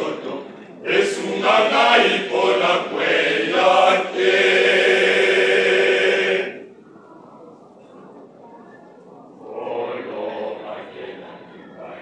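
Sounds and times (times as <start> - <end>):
choir singing: 0.0 - 6.7, 9.4 - 12.0.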